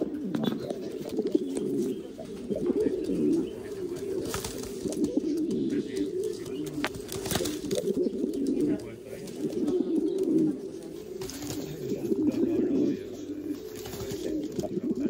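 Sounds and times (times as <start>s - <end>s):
pigeon cooing: 0.0s - 15.0s.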